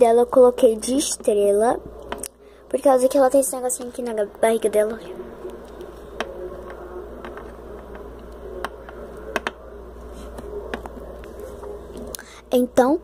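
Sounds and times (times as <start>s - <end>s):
faint room hum: 0.0s - 13.0s
plastic toys tapping on table: 8.6s - 9.6s.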